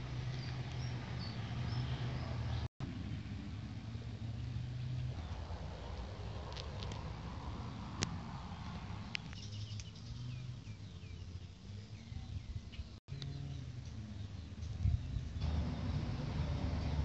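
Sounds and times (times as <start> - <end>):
small birds chirping: 0.2 - 2.7, 7.6 - 16.1.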